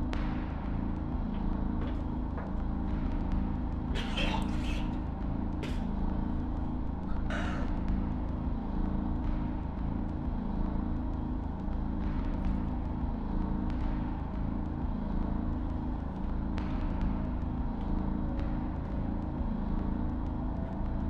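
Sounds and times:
low mechanical drone: 0.0s - 21.0s.

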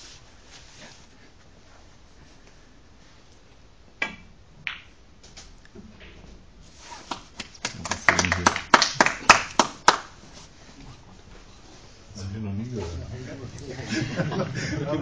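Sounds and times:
cue striking ball: 4.0s - 4.9s.

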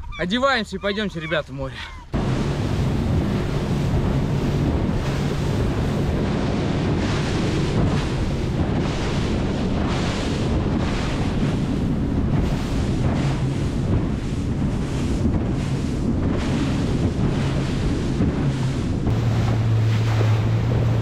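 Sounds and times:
outboard motor hum: 0.0s - 21.0s
wind buffeting microphone: 0.0s - 21.0s
water rushing and splashing: 0.5s - 21.0s.

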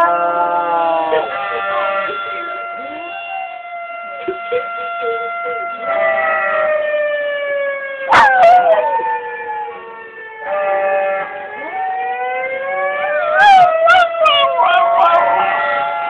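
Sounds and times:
dog howling: 0.0s - 3.1s, 5.8s - 6.8s, 8.1s - 12.0s, 13.2s - 16.0s
emergency siren wailing: 0.0s - 16.0s.

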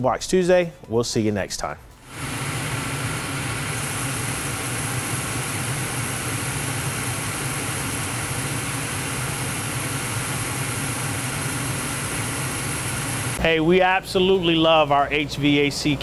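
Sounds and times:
gas burners rushing: 2.1s - 13.4s.

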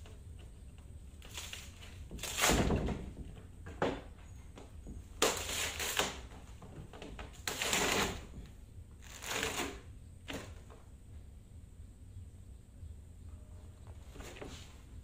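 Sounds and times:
fiberglass laminate peeled off mould: 5.2s - 6.3s.

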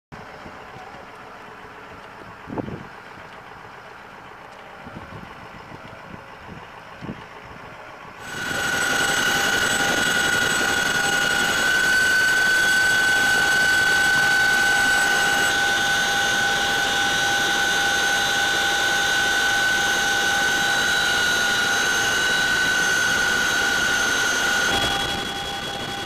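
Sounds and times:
helicopter cabin noise: 0.2s - 26.0s
high-pitched whine: 8.2s - 26.0s.

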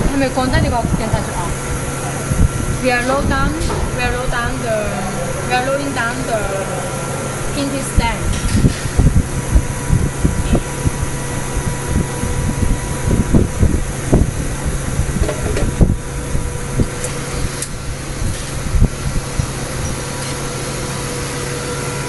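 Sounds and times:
workshop machinery humming: 0.0s - 22.0s.

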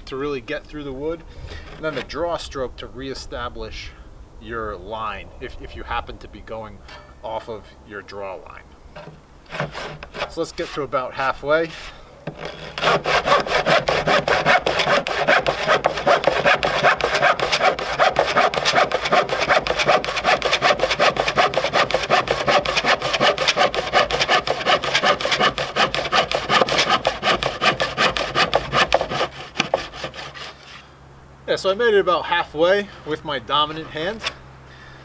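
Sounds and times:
hand saw cutting wood: 1.5s - 2.1s, 9.0s - 10.9s, 12.3s - 30.9s, 33.7s - 34.4s.

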